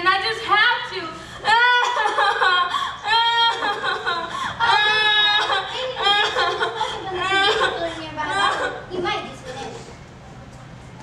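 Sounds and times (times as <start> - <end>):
girl crying: 1.0 - 9.8.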